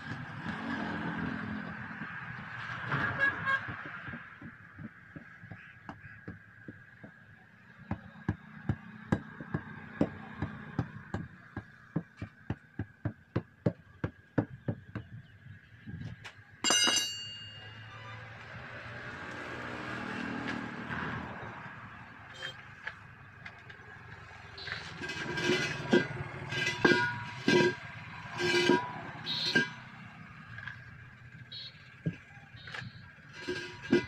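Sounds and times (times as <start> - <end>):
ringing metal clang: 16.6 - 18.1, 25.2 - 27.8
tyre rolling with scraping rumble: 24.6 - 27.8.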